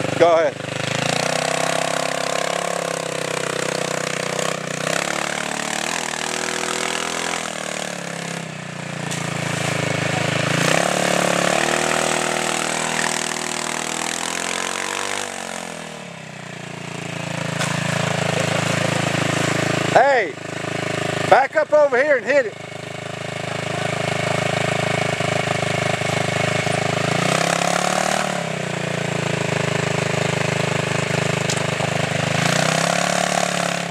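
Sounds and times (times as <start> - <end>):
dune buggy engine revving: 0.0 - 33.9.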